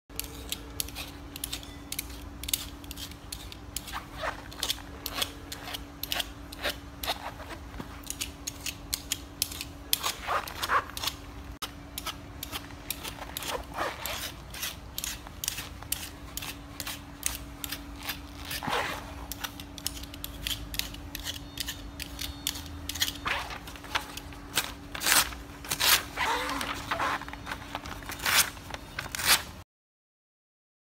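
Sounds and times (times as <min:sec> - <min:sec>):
knife scraping fabric: 0:00.2 - 0:11.2, 0:12.0 - 0:29.6
blade slicing paper: 0:19.3 - 0:29.6.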